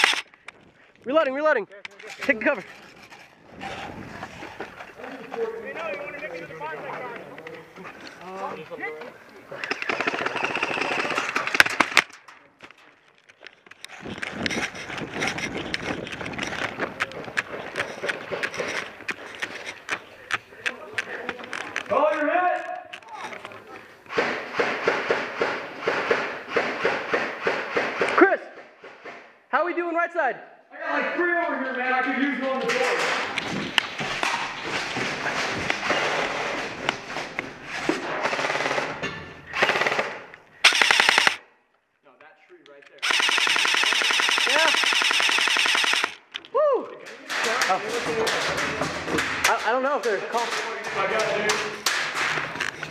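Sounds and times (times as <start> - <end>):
wind rumble on microphone: 3.4 - 4.7, 14.0 - 17.4
airsoft rifle full-auto bursts: 9.7 - 12.0, 38.2 - 38.9, 39.6 - 41.4, 43.0 - 46.2
sharp clicks: 40.6 - 41.4, 42.6 - 46.5.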